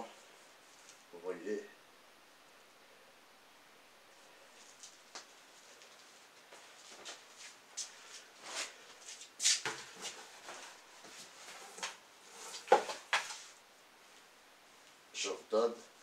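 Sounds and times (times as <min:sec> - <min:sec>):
clothes rustling: 0:04.2 - 0:15.1.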